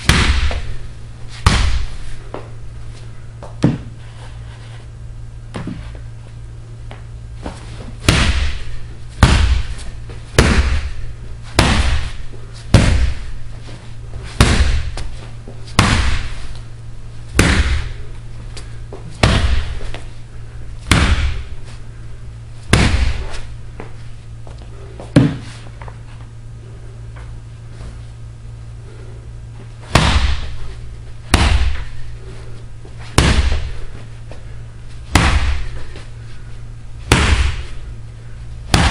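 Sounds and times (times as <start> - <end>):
wooden bat whacking punching bag: 0.0 - 0.8, 1.4 - 2.5, 3.4 - 4.0, 5.5 - 5.9, 6.9 - 13.4, 14.2 - 16.7, 17.3 - 20.1, 20.8 - 21.6, 22.6 - 23.9, 25.0 - 25.6, 29.8 - 30.7, 31.3 - 32.1, 33.0 - 34.1, 35.0 - 36.1, 37.0 - 37.8, 38.6 - 38.9
steady low hum: 0.0 - 38.9.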